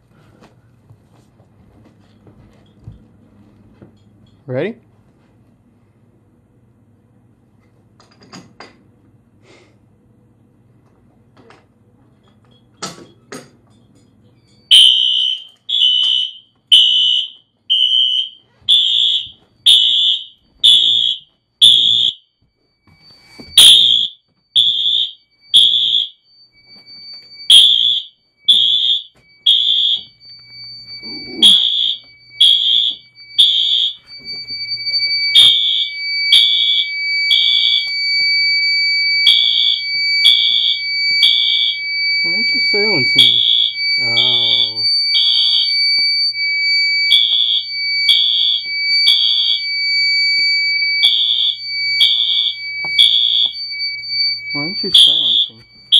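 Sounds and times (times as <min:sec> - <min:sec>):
high-pitched alarm tones: 0:14.4 - 0:55.9
fire alarm horns pulsing: 0:14.7 - 0:22.4, 0:23.5 - 0:55.9.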